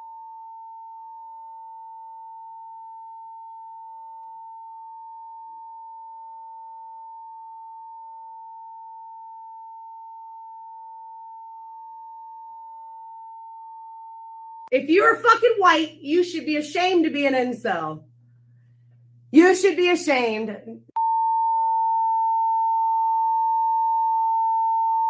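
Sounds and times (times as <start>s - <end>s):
speech: 14.7s - 18.0s, 19.3s - 20.9s
censor bleep tone: 21.0s - 25.0s.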